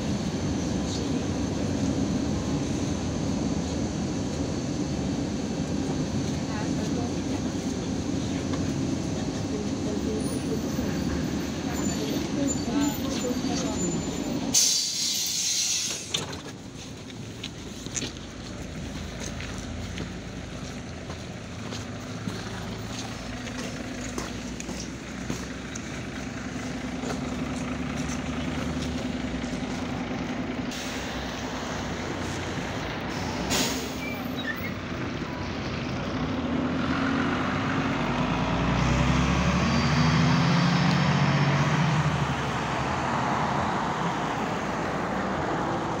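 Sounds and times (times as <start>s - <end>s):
bus engine idling: 0.0s - 39.1s
compressed air hiss: 14.6s - 16.1s, 30.7s - 31.6s
bus engine revving: 18.6s - 46.0s.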